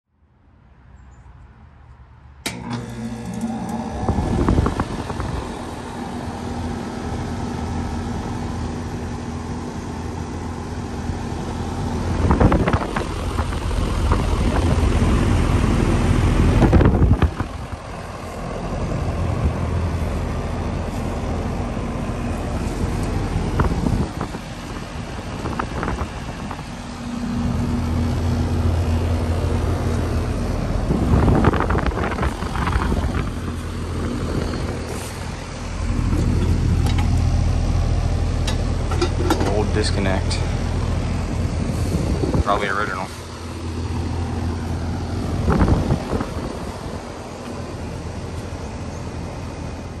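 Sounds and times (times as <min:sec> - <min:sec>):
compressor hum: 0:02.3 - 0:50.0
condenser fan rushing: 0:02.4 - 0:50.0.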